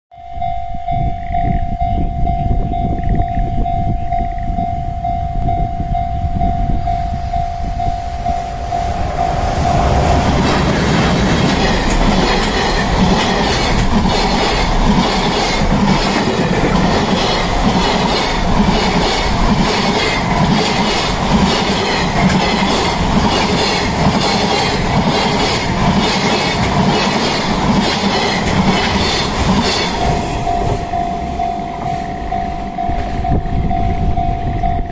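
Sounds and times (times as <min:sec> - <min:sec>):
train wheels clattering over rails: 0:08.2 - 0:34.2
level crossing bell ringing: 0:29.9 - 0:34.9.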